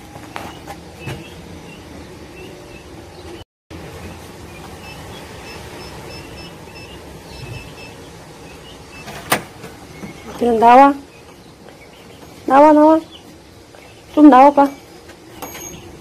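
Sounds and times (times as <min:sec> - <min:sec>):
faint high chirps: 0:04.5 - 0:09.1.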